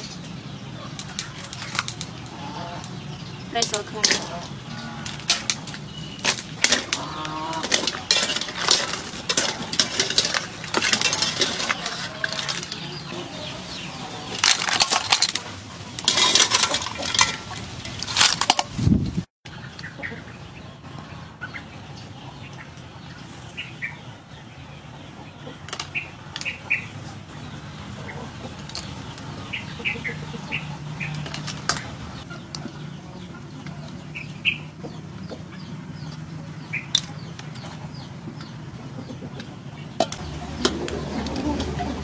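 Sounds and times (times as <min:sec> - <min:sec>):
clams clattering in boiling water: 0:01.0 - 0:02.3, 0:03.6 - 0:13.1, 0:14.3 - 0:18.8
handling noise: 0:03.6 - 0:19.2.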